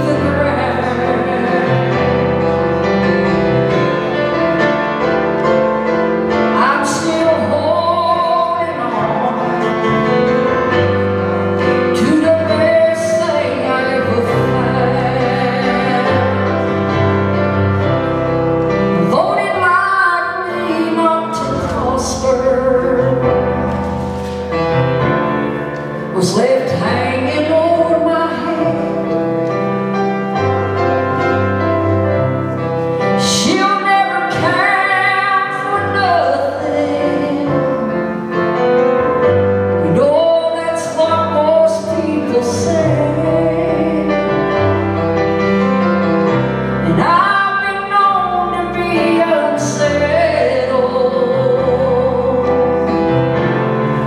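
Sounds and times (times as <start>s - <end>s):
instrumental accompaniment: 0.0s - 54.0s
person singing long notes: 7.1s - 11.1s.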